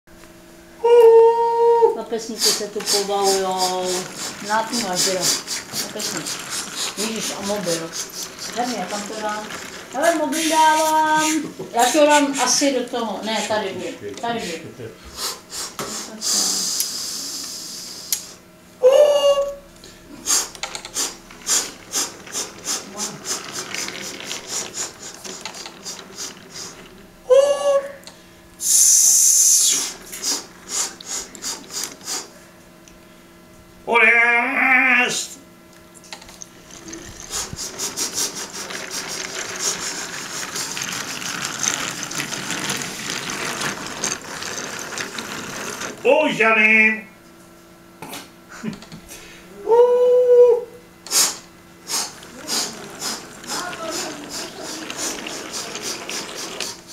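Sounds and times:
model train clicking on track: 0:02.4 - 0:11.3, 0:20.6 - 0:26.9, 0:36.8 - 0:46.0, 0:52.2 - 0:56.9
locomotive gears rattling: 0:02.4 - 0:14.5, 0:20.3 - 0:27.3, 0:36.0 - 0:46.4, 0:51.9 - 0:56.9.

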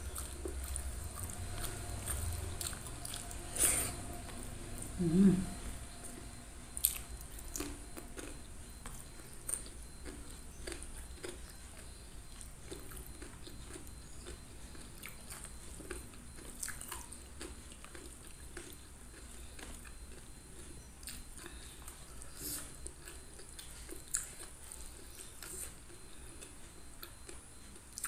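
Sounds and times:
person chewing food: 0:00.0 - 0:28.0.

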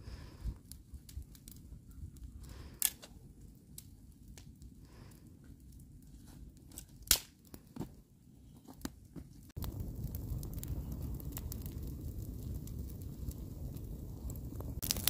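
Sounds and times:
wood fire crackling: 0:00.0 - 0:15.0.

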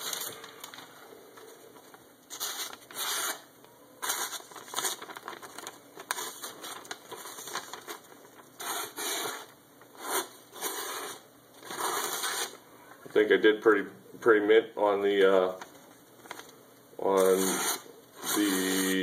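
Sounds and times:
paper rustling: 0:00.0 - 0:03.4, 0:04.0 - 0:12.5, 0:15.1 - 0:16.6.

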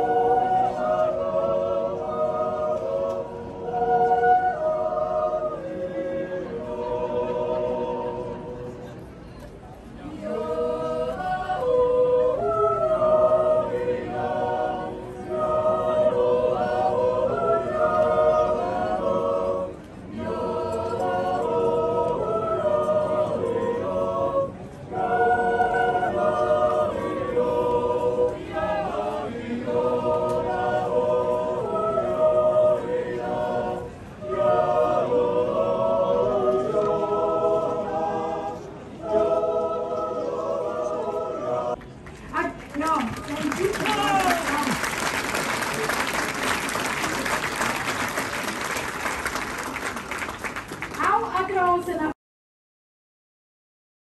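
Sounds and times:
choir singing a cappella: 0:00.0 - 0:09.1, 0:10.0 - 0:41.9.

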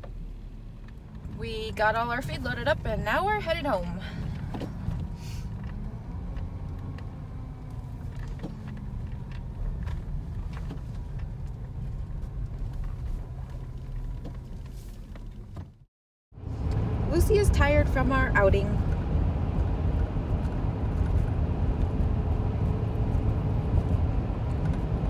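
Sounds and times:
car engine and tyres rumbling: 0:00.0 - 0:25.0.

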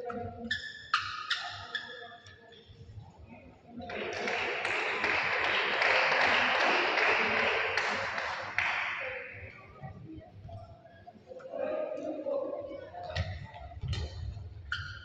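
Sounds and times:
spectators applauding: 0:03.9 - 0:09.5.

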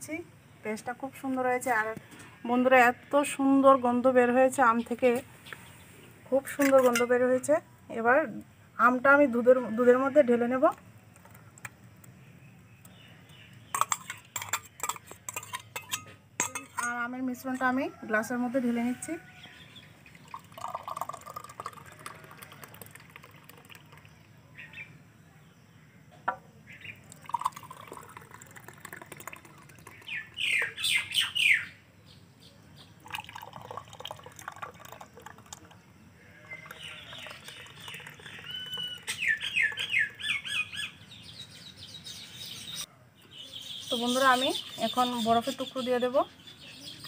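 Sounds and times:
birds chirping: 0:11.0 - 0:17.1, 0:19.2 - 0:47.0
milkshake pouring into glasses: 0:19.6 - 0:24.4, 0:27.0 - 0:30.8, 0:33.0 - 0:40.2.

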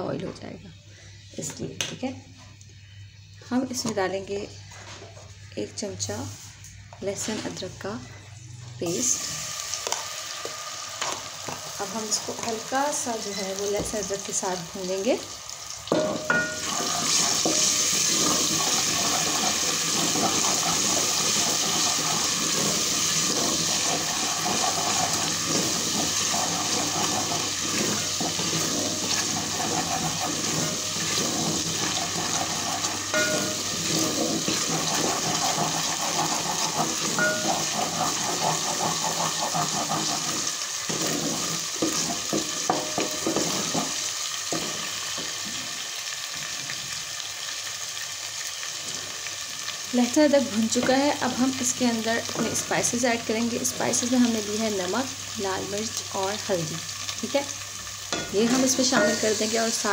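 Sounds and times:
paste sizzling in hot oil: 0:08.8 - 0:59.9
wooden spoon stirring in a pot: 0:16.5 - 0:45.6, 0:58.2 - 0:59.9.

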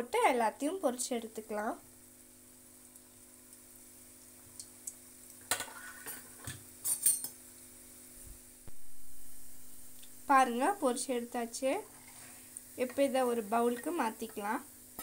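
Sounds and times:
food frying in oil: 0:00.0 - 0:15.0
metal spoon clinking on frying pan: 0:06.8 - 0:07.4.

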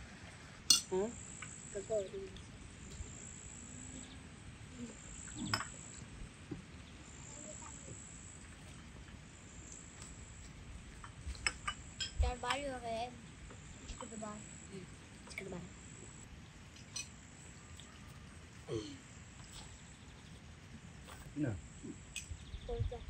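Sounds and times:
cutlery clinking on plates: 0:00.7 - 0:00.9
insects trilling: 0:00.7 - 0:06.1, 0:06.7 - 0:10.5, 0:11.4 - 0:23.0.

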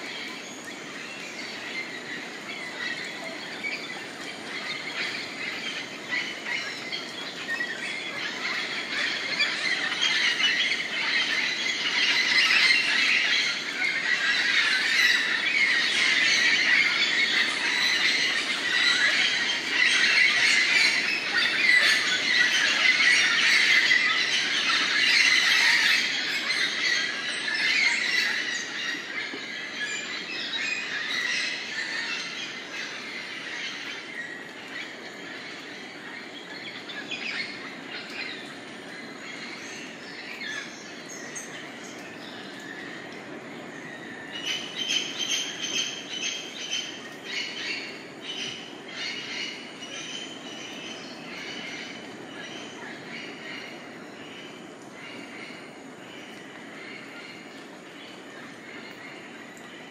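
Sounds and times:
chorus of birds squawking: 0:00.0 - 0:54.0.

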